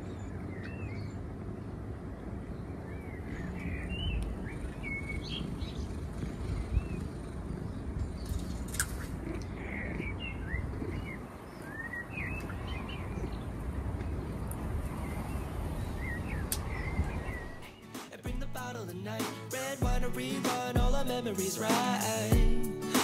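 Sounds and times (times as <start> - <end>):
low background rumble: 0.0 - 17.5
small birds chirping: 0.0 - 23.0.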